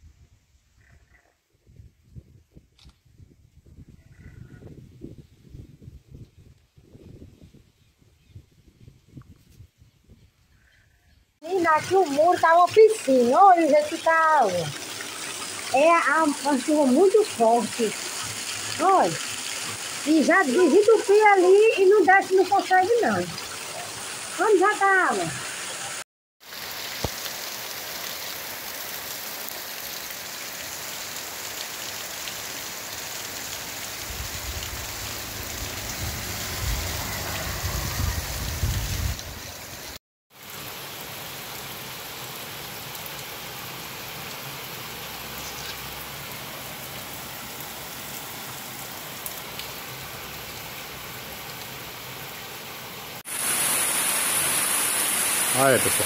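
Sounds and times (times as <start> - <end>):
heavy rain pouring on street: 11.8 - 56.0.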